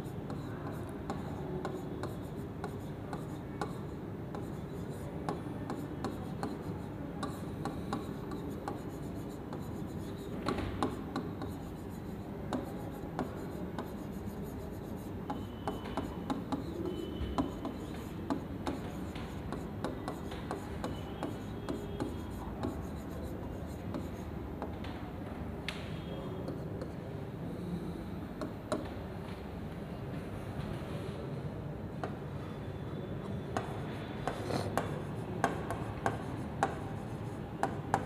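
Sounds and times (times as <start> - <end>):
steady background noise: 0.0 - 38.0
stylus tapping on screen: 37.6 - 38.0.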